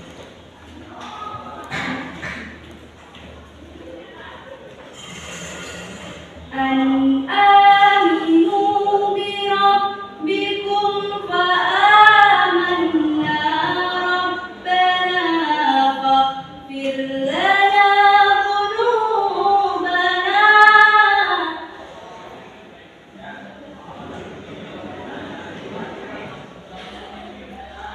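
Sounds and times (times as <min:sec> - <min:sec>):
woman chanting recitation: 0:06.5 - 0:21.9.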